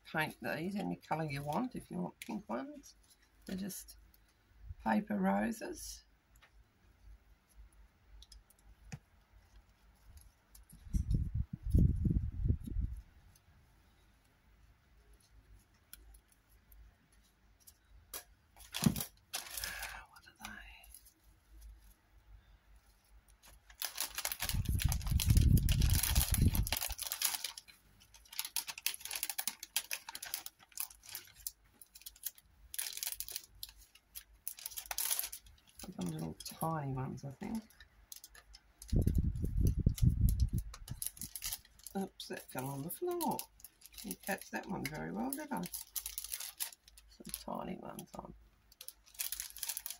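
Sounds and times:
faint clicks and taps: 6.3 - 6.6, 7.4 - 11.2
plastic packet crinkling: 18.6 - 21.0, 23.4 - 49.9.

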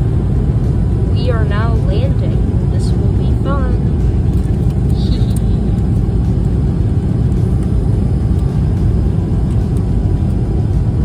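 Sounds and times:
airliner cabin rumble: 0.0 - 11.0.

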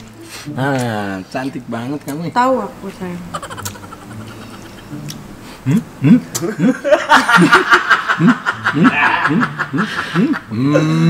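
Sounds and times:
woman giggling: 3.4 - 5.0, 6.0 - 10.7.

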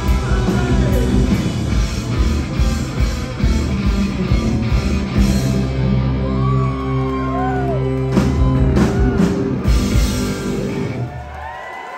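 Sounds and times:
hard rock band playing live: 0.0 - 11.2
crowd whooping: 5.0 - 11.9.

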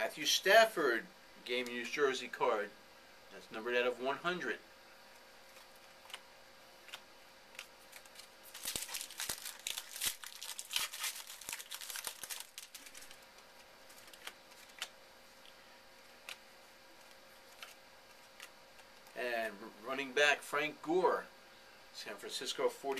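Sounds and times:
cards clicking: 6.8 - 15.6
wrapper tearing and crinkling: 7.6 - 13.2.

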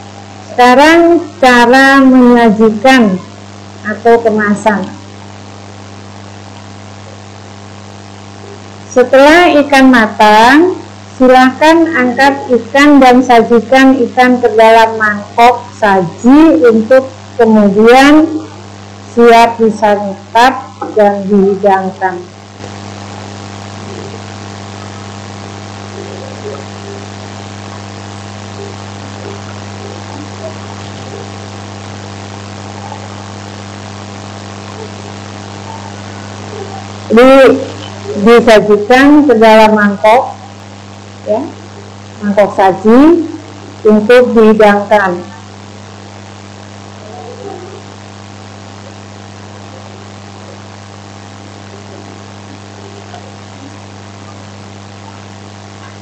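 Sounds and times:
constant hiss: 0.0 - 56.0
steady low hum: 0.0 - 56.0.

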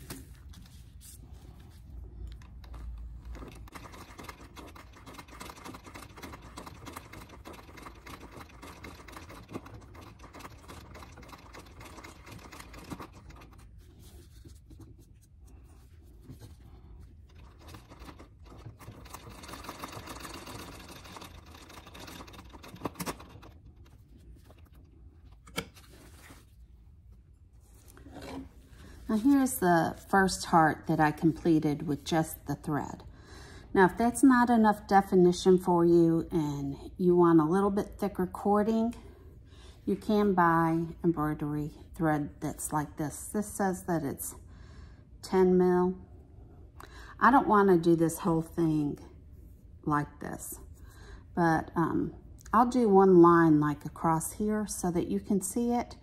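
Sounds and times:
sewing machine clattering: 2.6 - 13.6, 17.2 - 24.0.

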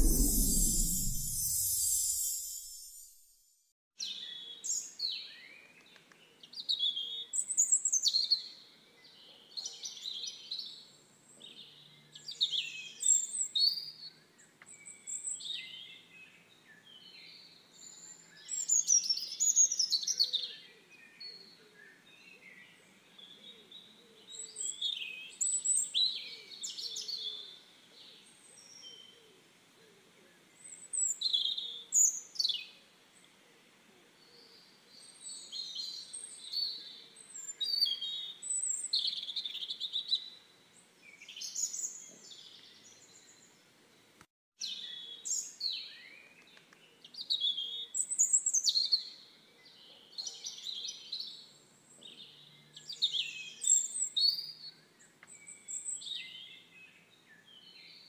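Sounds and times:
faint steady hiss: 0.0 - 3.4.

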